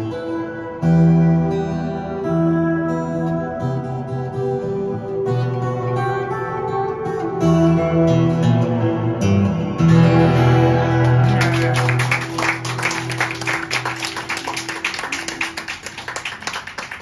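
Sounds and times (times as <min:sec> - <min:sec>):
acoustic guitar chord ringing: 0:00.0 - 0:15.9
audience applauding: 0:11.0 - 0:17.0.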